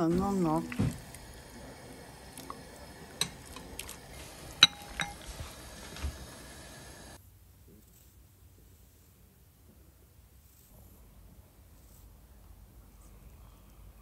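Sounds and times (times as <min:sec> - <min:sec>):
metal ladle clinking: 0:00.9 - 0:06.0.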